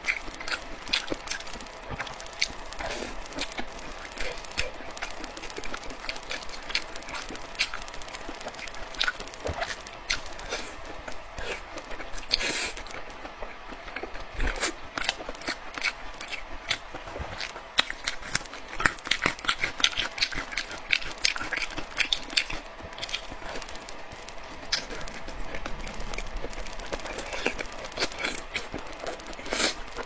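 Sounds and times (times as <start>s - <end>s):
mouth clicks: 0.0s - 16.8s, 17.4s - 30.0s
wet chewing and lip-smacking: 0.0s - 30.0s.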